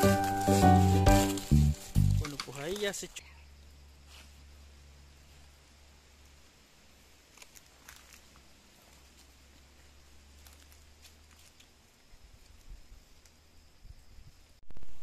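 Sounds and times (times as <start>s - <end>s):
faint outdoor hiss: 0.0s - 15.0s.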